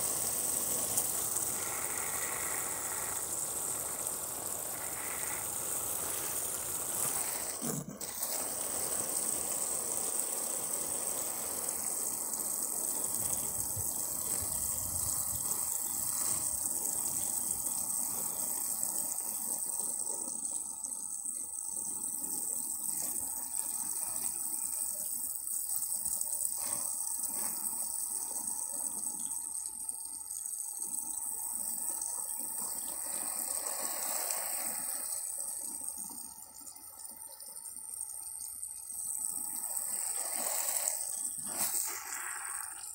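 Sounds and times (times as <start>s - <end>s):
water splashing onto plants: 0.0s - 19.2s.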